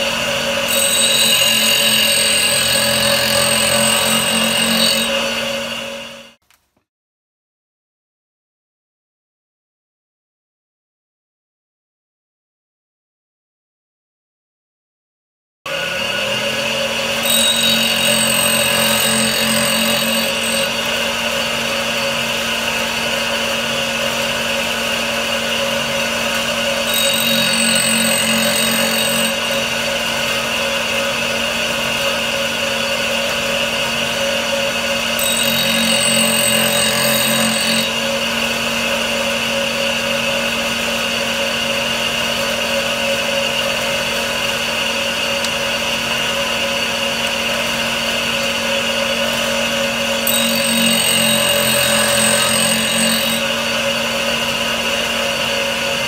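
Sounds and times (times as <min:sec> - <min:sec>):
grinder humming: 0:00.0 - 0:06.4, 0:15.7 - 0:41.2, 0:41.8 - 0:56.0
blade edge sharpened on grinding wheel: 0:00.6 - 0:05.7, 0:17.1 - 0:20.9, 0:26.4 - 0:30.0, 0:35.2 - 0:38.2, 0:50.2 - 0:53.6.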